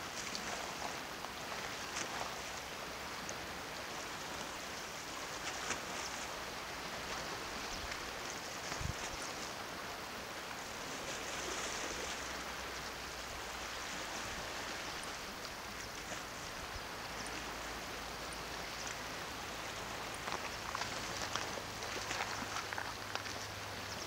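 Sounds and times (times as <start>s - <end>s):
sea washing against rocks: 18.8s - 24.0s.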